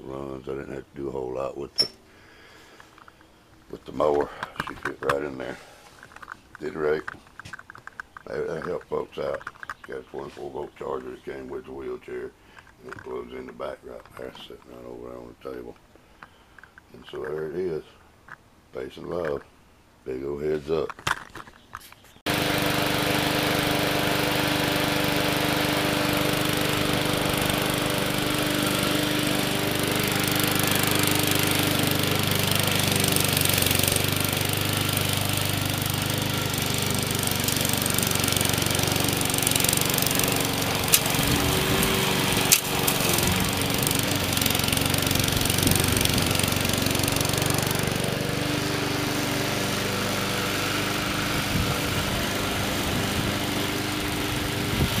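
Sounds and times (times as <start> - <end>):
lawn mower engine running: 1.8 - 11.3, 22.3 - 55.0
sharp clicks: 39.7 - 44.1.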